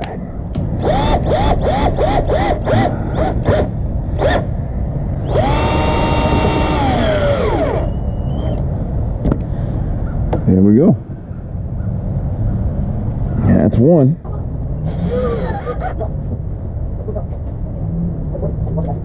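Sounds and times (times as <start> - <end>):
power drill driving screws: 0.8 - 4.4, 5.2 - 8.6.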